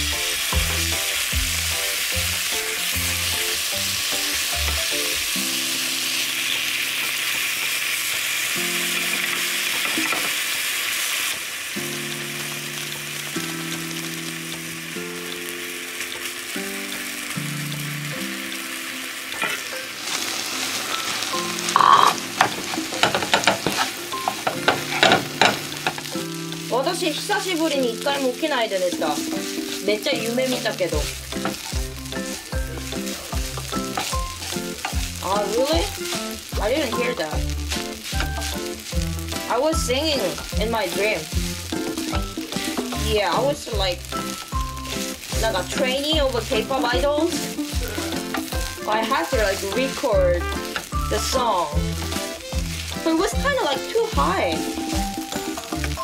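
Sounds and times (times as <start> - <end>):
food sizzling in a frying pan: 0.0 - 56.0
soft background music: 11.8 - 56.0
spatula scraping a pan: 19.4 - 55.8.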